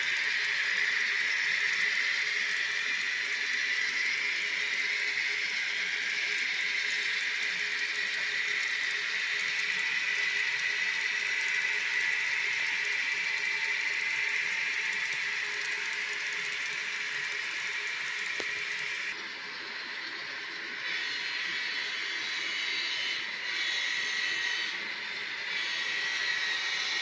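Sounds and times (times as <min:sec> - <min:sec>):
model train rolling on track: 0:00.0 - 0:27.0.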